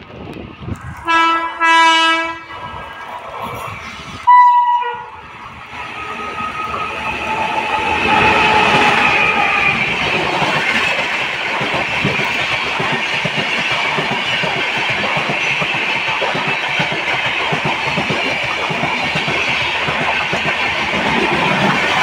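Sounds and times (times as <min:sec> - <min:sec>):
train rumbling past: 0:00.0 - 0:22.0
high-pitched horn toot: 0:01.0 - 0:02.5, 0:04.3 - 0:05.1
train horn blasts: 0:01.0 - 0:02.5, 0:04.3 - 0:05.1.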